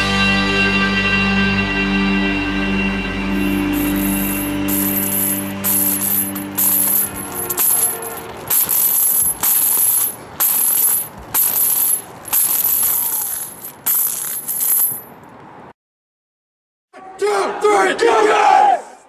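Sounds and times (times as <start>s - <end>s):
heavy chains clanking on asphalt: 3.4s - 15.4s.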